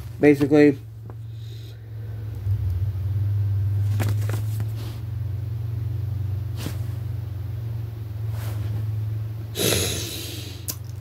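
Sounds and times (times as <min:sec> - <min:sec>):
low hum: 0:00.8 - 0:11.0.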